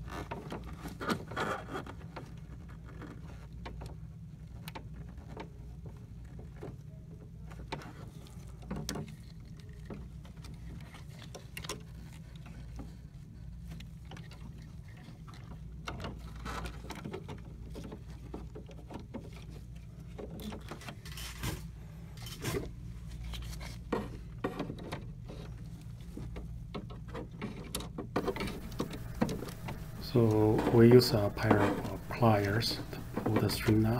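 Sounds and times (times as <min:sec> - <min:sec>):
low steady hum: 0:28.2 - 0:33.9
rustling: 0:28.2 - 0:33.9.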